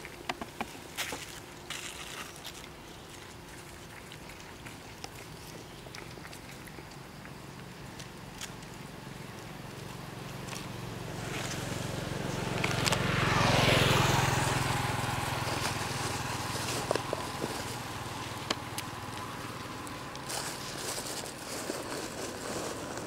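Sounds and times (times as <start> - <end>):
vehicle engine passing: 8.2 - 23.0.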